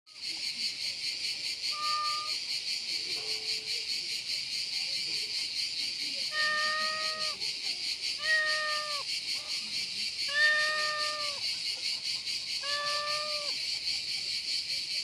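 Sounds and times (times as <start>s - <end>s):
insects chorus: 0.1s - 15.0s
cat meowing: 1.7s - 2.4s, 6.3s - 7.4s, 8.2s - 9.0s, 10.3s - 11.4s, 12.6s - 13.6s.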